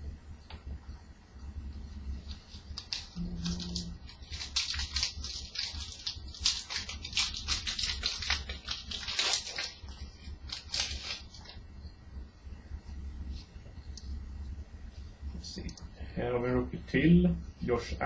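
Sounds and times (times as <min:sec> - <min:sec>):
cards rustling: 0:02.2 - 0:11.6
wrapper crinkling: 0:02.2 - 0:11.6.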